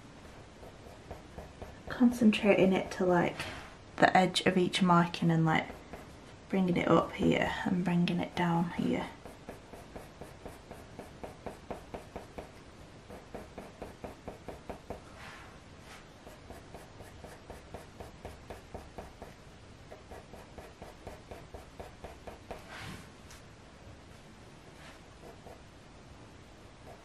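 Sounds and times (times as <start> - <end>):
coloured pencil scratching on paper: 0.2 - 3.4, 5.0 - 22.8, 24.8 - 25.6.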